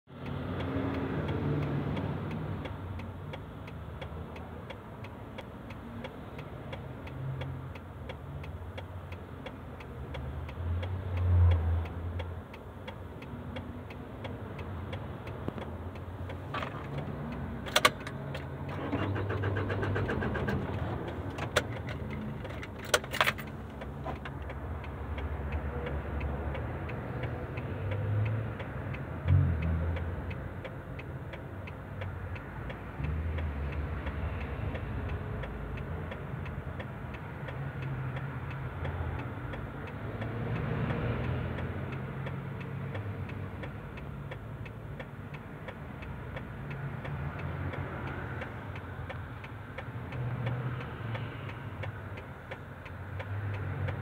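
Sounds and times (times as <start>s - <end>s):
engine and road rumble: 0.0s - 54.0s
turn signal relay ticking: 0.1s - 54.0s
sharp clicks: 12.2s - 24.6s.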